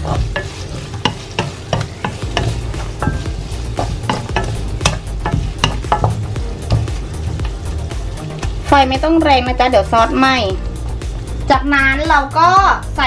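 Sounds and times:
spatula scraping a pan: 0.0 - 8.9
meat sizzling in a frying pan: 0.0 - 13.0.

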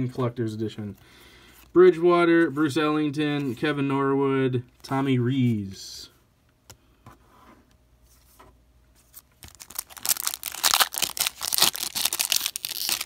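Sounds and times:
foil wrapper tearing and crinkling: 9.4 - 13.0.

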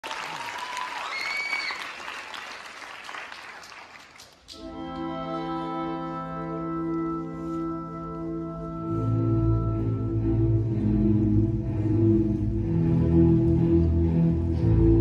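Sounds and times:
audience applauding: 0.0 - 4.7
held musical chord: 4.6 - 15.0.

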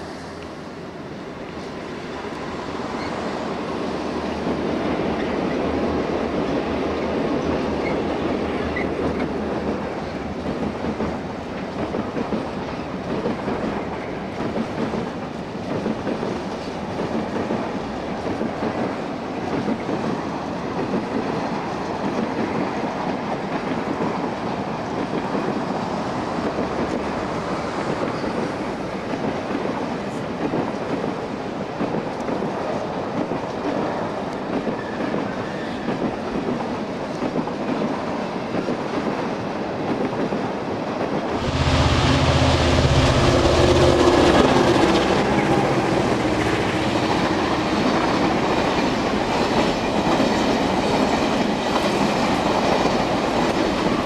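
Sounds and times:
diesel locomotive engine drone: 0.0 - 7.4, 41.2 - 54.0
train wheels clattering on rails: 1.5 - 54.0.

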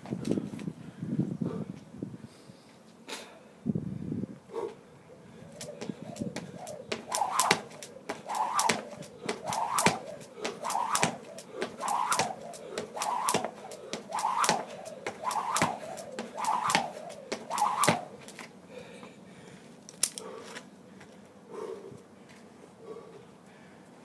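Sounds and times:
jump rope slapping the floor: 5.6 - 18.4.

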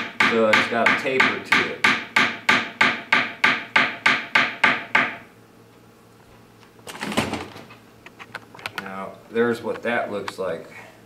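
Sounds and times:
hammer striking wire on steel block: 0.0 - 5.3.

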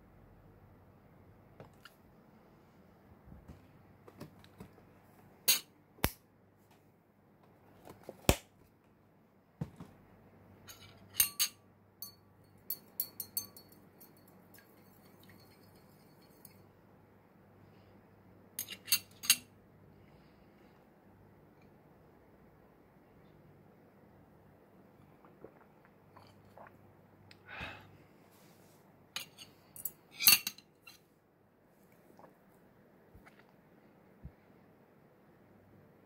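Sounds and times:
spoon clinking against glass: 10.7 - 16.6.

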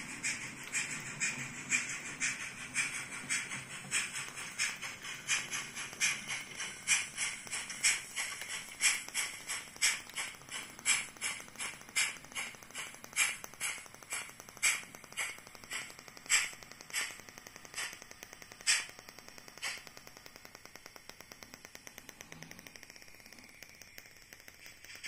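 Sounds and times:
steam chuffs from small speaker: 0.0 - 18.0
fine fast ticking of model: 0.0 - 25.0.

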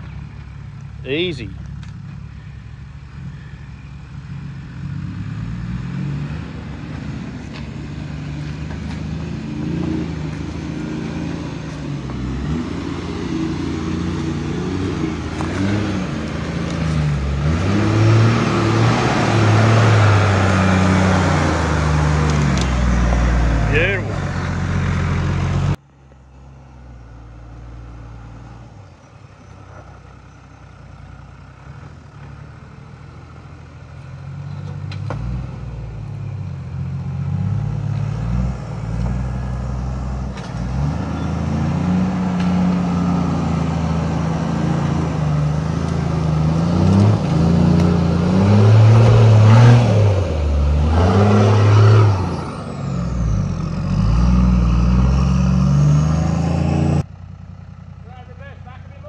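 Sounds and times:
truck engine working under load: 26.8 - 59.0.

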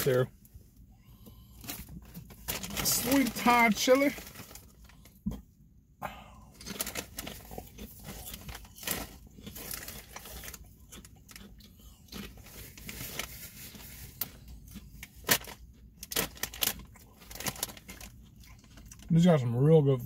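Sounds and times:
chewing crunchy potato chips: 6.4 - 19.2.

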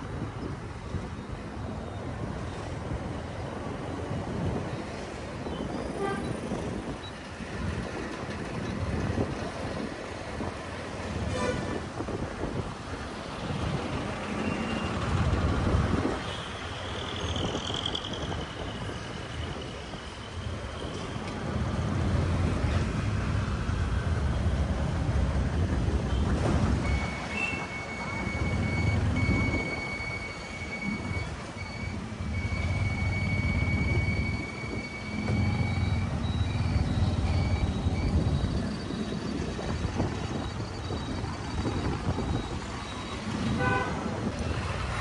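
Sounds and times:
street traffic rumbling: 0.0 - 45.0
high electronic beep: 26.8 - 39.6.

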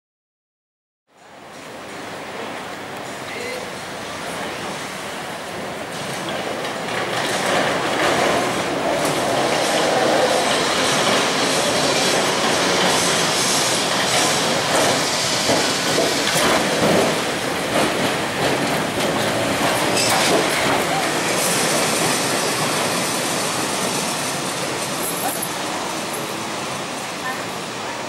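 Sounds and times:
tram wheels rumbling over rails: 1.2 - 28.0
tram wheel squeal: 7.1 - 17.3, 18.2 - 27.8.

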